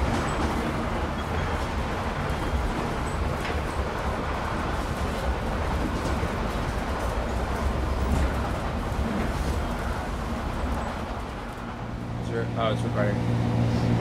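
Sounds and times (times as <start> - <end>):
train car rumbling: 0.0 - 14.0.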